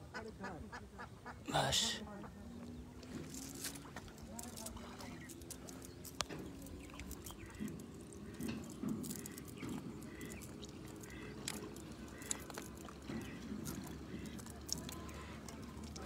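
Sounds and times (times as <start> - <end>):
duck quacking: 10.0 - 12.5.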